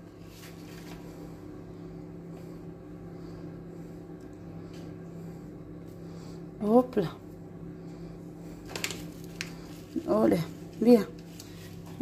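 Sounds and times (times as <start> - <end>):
steady low hum: 0.0 - 12.0
soft handling sounds: 0.2 - 1.3.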